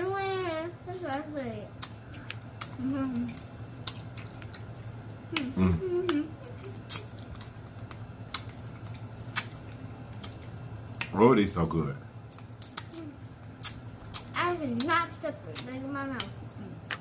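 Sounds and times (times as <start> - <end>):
steady low hum: 0.0 - 17.0
mouth eating noises: 1.7 - 17.0.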